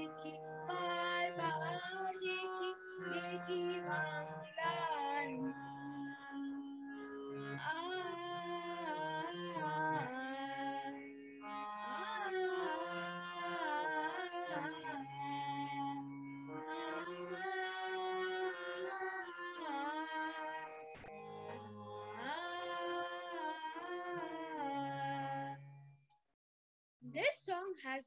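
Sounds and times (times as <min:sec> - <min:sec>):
boy singing: 0:00.0 - 0:06.7
instrumental accompaniment: 0:00.0 - 0:26.1.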